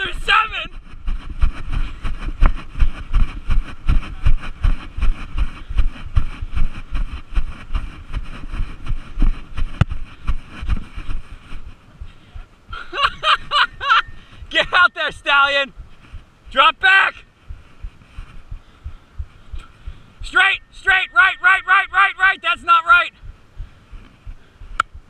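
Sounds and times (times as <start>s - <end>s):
wind buffeting microphone: 0.0s - 14.7s, 17.2s - 20.3s, 23.1s - 25.0s.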